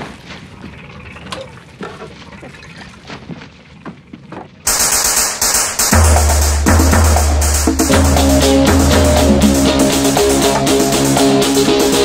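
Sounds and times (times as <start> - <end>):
loud music with drums: 4.7 - 12.0.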